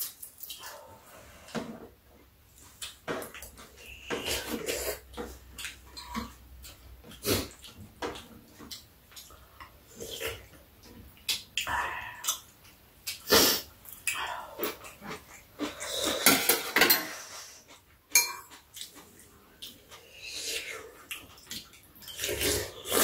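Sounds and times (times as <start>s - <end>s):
people slurping and chewing: 0.0s - 23.0s
utensils clinking against bowls: 15.9s - 17.2s, 18.1s - 18.6s.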